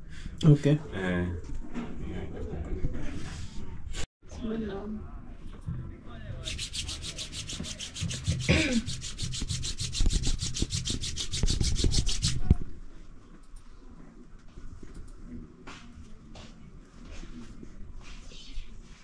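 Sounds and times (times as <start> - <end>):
rapid rubbing strokes: 6.4 - 12.6.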